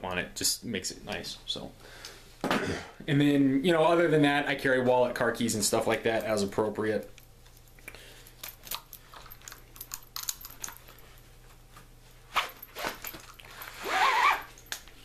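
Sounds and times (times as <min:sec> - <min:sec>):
belt rustling: 0:07.2 - 0:15.0.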